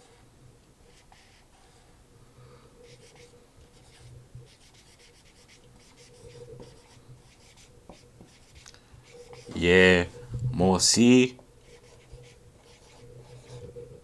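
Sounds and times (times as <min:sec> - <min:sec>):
marker scratching on whiteboard: 0:00.9 - 0:01.8, 0:02.8 - 0:10.2, 0:11.6 - 0:13.9.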